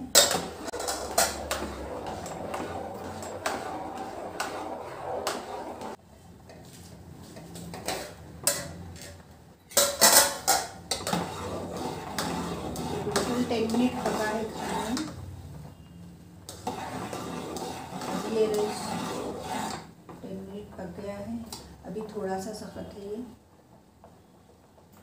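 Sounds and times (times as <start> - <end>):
metal clanks of spoon and pot: 0.1 - 2.4, 7.8 - 11.3
spoon stirring rice in metal pot: 0.2 - 6.7, 9.7 - 15.2, 16.4 - 20.2.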